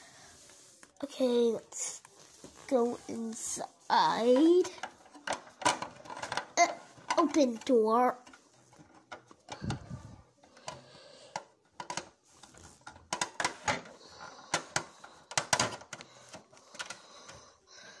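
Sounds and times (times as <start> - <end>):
person speaking: 2.6 - 4.8, 6.6 - 8.3
plastic toy clicks and knocks: 4.3 - 9.8, 10.5 - 17.1.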